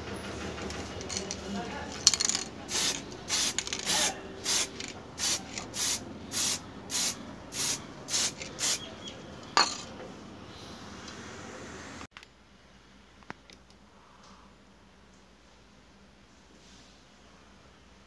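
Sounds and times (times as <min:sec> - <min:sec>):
spray paint can hissing: 0:02.2 - 0:08.9.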